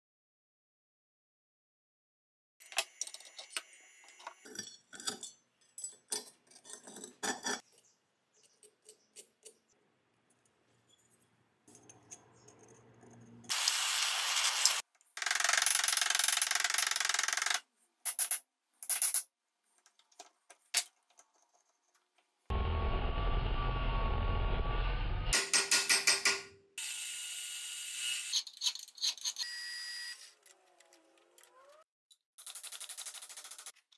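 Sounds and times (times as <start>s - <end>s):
hammer tapping metal: 25.4s - 26.6s.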